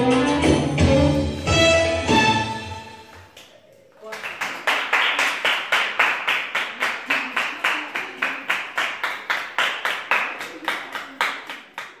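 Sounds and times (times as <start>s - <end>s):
people clapping in rhythm: 3.1s - 12.0s.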